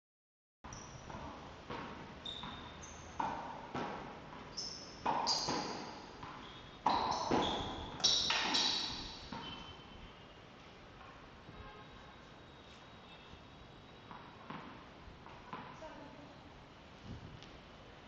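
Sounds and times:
ball bouncing on tiled floor: 0:01.1 - 0:09.6
tennis ball hit with racket: 0:01.1 - 0:09.7, 0:14.1 - 0:15.8.

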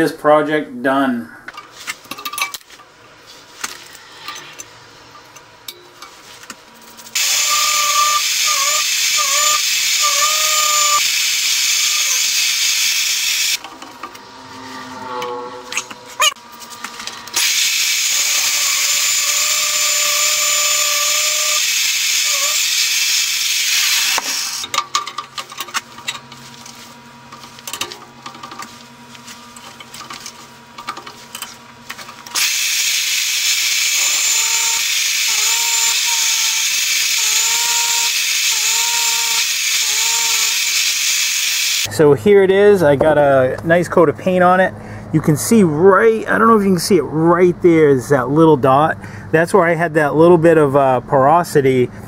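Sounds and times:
drill press cutting steel with hiss: 0:07.2 - 0:13.6, 0:17.3 - 0:24.7, 0:32.3 - 0:41.9
machine low hum: 0:13.6 - 0:17.4.

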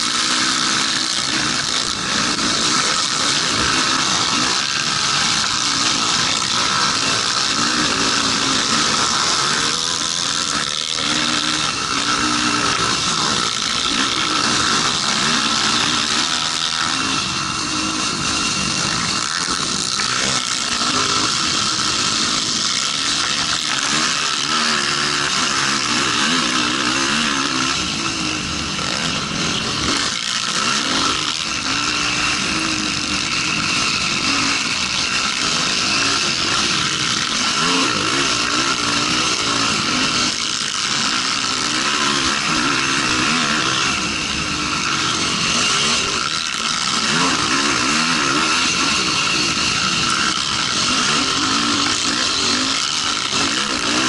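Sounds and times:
quad engine revving: 0:00.0 - 0:54.0.

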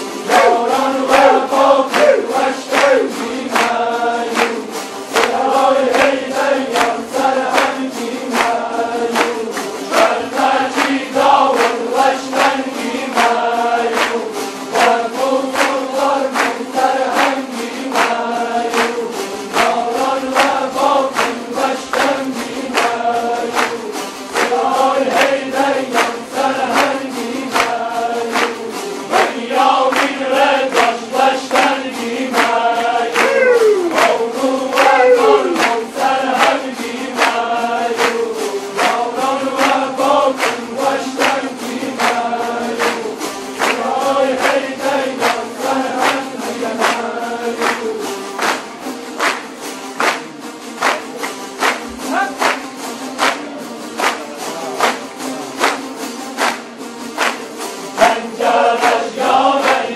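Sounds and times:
strummed long-necked lutes: 0:00.0 - 0:59.9
men chanting in unison: 0:00.2 - 0:04.4, 0:29.3 - 0:38.0, 0:58.0 - 0:59.9.

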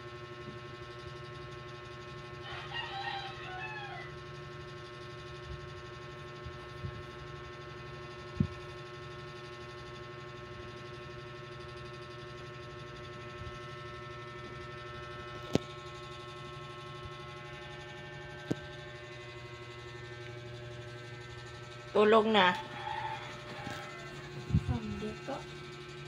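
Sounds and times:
electrical hum: 0:00.0 - 0:26.0.

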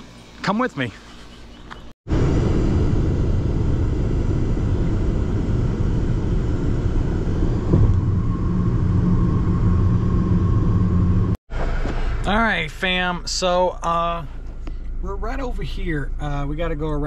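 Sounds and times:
road and wind noise in car: 0:02.1 - 0:12.3
low hum: 0:02.1 - 0:17.0.

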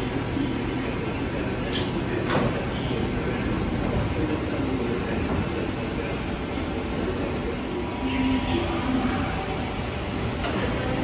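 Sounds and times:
stopped train humming: 0:00.0 - 0:11.0
train doors sliding open: 0:01.6 - 0:04.4, 0:09.9 - 0:11.0.

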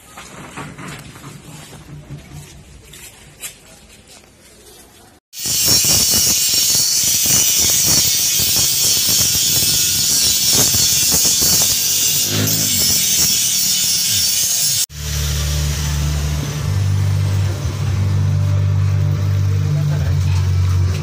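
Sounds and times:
angle grinder grinding steel: 0:05.4 - 0:21.0.

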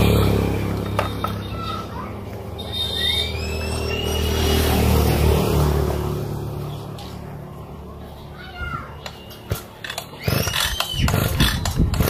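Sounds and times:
two-stroke engine revving: 0:00.0 - 0:06.6, 0:09.8 - 0:12.0.

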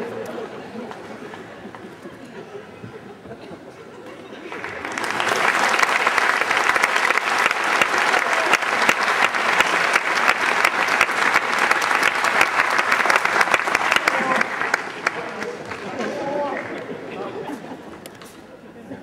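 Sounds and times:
audience applauding: 0:04.4 - 0:17.4.

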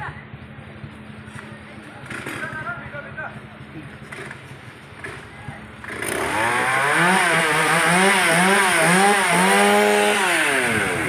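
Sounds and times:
chainsaw cutting wood: 0:05.0 - 0:11.0.

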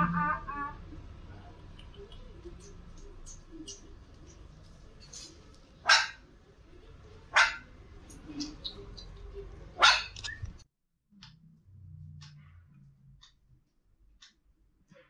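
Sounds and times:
puppy barking: 0:05.8 - 0:06.2, 0:07.3 - 0:07.7, 0:09.8 - 0:10.2.

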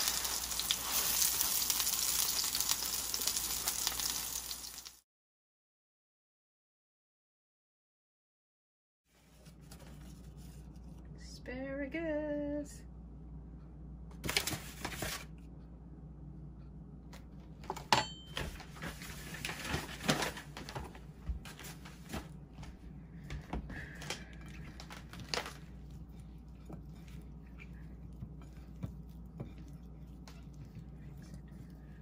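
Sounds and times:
steady low hum: 0:09.4 - 0:32.0
kitchen knocks and clatter: 0:17.6 - 0:19.0.

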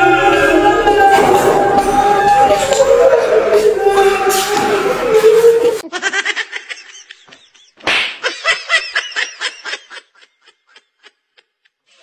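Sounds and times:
person laughing: 0:05.8 - 0:12.0.

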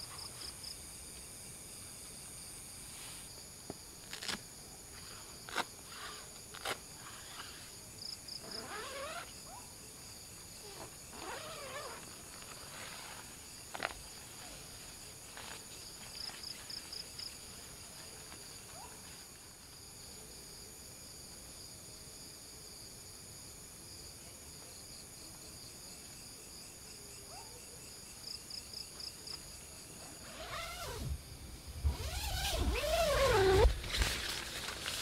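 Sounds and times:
night insects chirring: 0:00.0 - 0:35.0
nylon tent fabric rustling: 0:08.4 - 0:09.6, 0:10.6 - 0:19.5, 0:30.0 - 0:31.2, 0:31.8 - 0:35.0.

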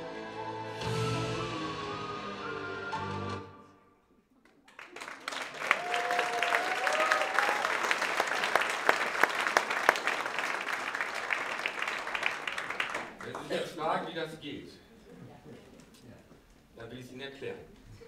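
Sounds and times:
audience clapping: 0:04.4 - 0:14.1.

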